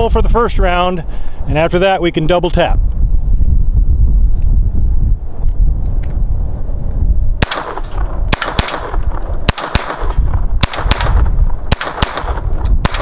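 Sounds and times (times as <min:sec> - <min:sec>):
wind rumble on microphone: 0:00.0 - 0:13.0
pistol shots: 0:07.4 - 0:13.0.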